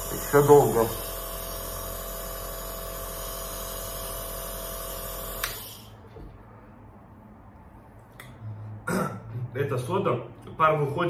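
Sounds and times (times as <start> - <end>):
nebulizer humming and hissing: 0.0 - 6.0.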